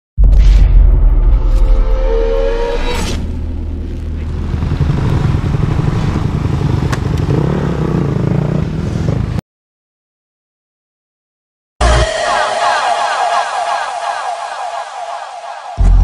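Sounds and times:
dirt bike engine roaring: 3.8 - 9.4.

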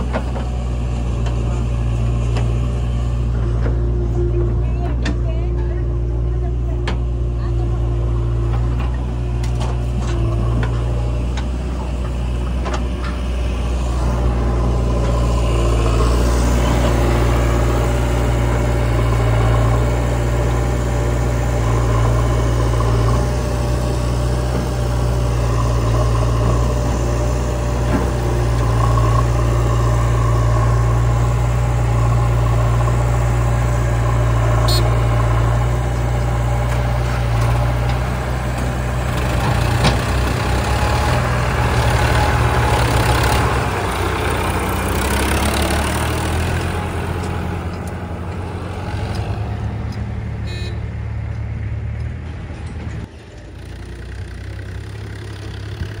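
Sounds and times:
diesel engines idling: 0.0 - 56.0.

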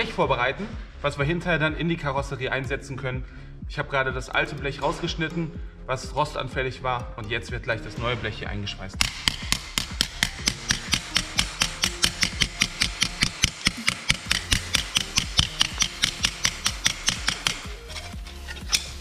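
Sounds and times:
hammer striking sheet metal: 9.0 - 19.0.

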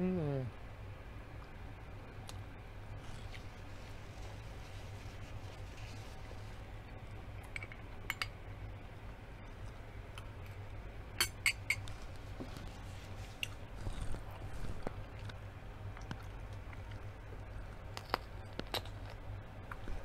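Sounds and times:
steady low hum: 0.0 - 20.0
spoon clinking glass bowl: 11.2 - 11.8.

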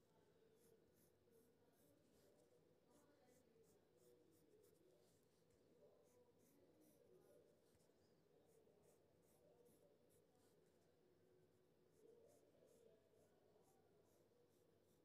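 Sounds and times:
pencil scratching on paper: 0.0 - 11.0, 11.6 - 15.0.

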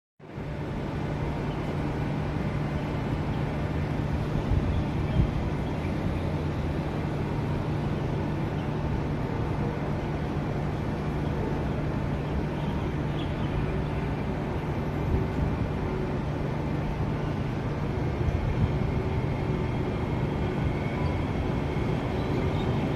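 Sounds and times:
electric train humming: 0.3 - 22.9.

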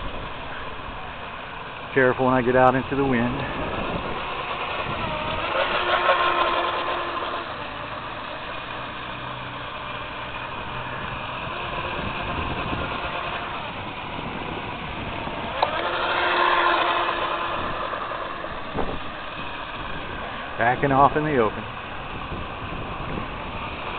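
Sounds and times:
rc boat motor whining: 0.0 - 23.9
wind noise: 2.8 - 6.3, 10.6 - 16.2, 17.2 - 23.9.

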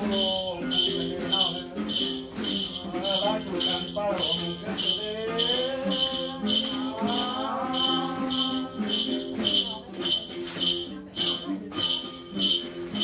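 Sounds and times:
person singing gliding melody: 0.0 - 9.6
jingling percussion beat: 0.0 - 13.0.

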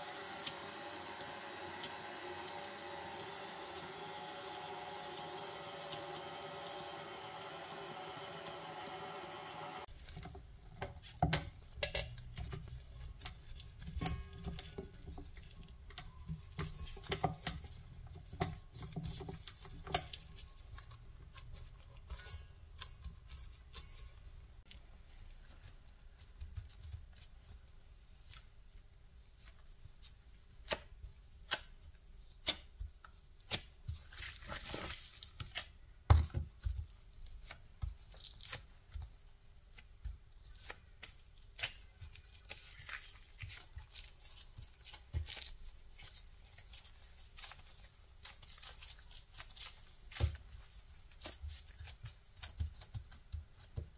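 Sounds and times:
metal bowl and beater rattling: 11.2 - 24.2
rustling: 36.6 - 53.9
dough thumps: 48.2 - 53.9.

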